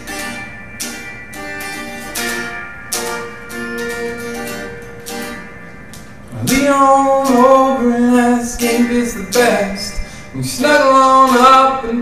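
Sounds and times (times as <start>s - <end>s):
electric guitar strumming chords: 0.0s - 12.0s.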